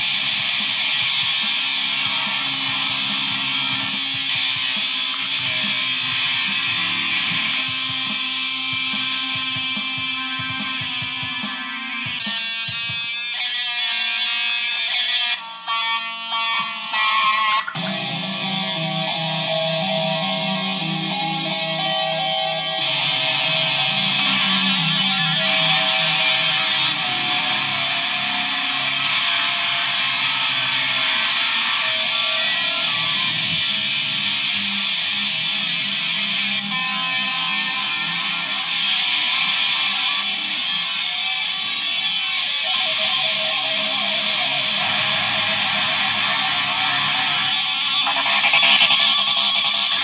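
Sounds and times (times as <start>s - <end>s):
electric guitar melody: 0.0s - 50.0s
fast even pulsing: 47.9s - 50.0s.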